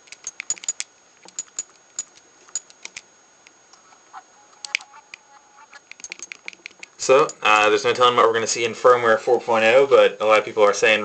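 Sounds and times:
handheld console button clicks: 4.5 - 6.9.

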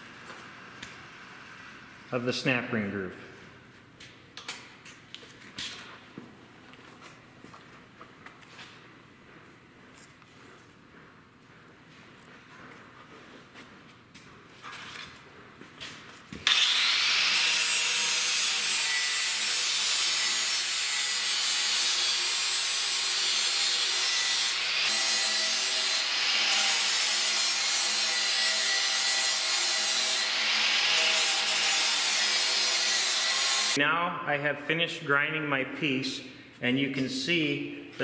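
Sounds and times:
angle grinder grinding metal: 16.4 - 33.8.

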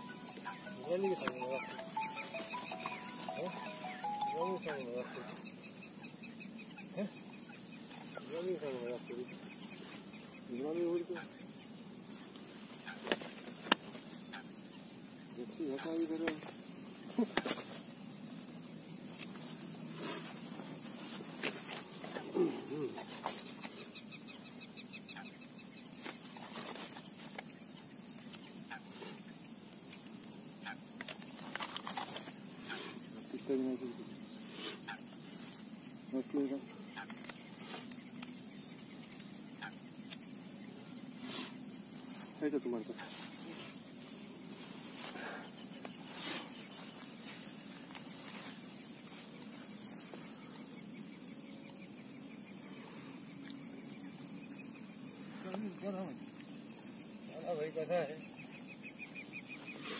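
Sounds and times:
crickets droning: 0.0 - 59.9
faint outdoor hiss: 0.0 - 59.9
faint animal calls: 34.5 - 35.5.

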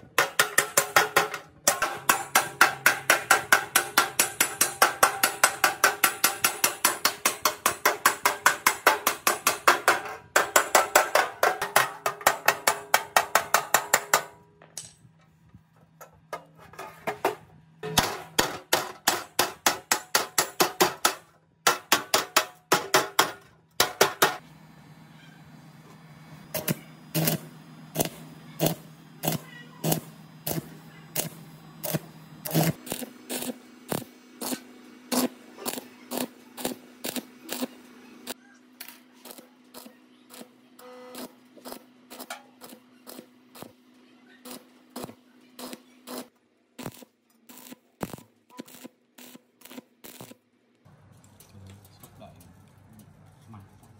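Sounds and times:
hammer striking sheet steel: 0.0 - 15.0, 16.4 - 24.4
steady low hum: 23.8 - 48.8.

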